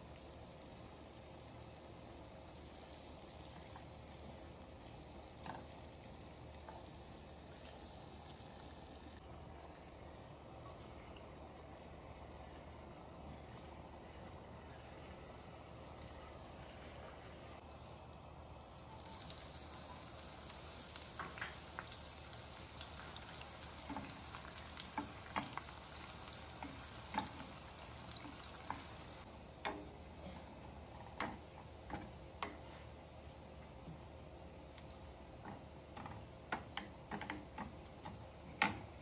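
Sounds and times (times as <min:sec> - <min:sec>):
onions sizzling in hot oil: 0:00.0 - 0:09.2, 0:17.6 - 0:29.3
wooden spatula clicking on pan: 0:23.2 - 0:28.9.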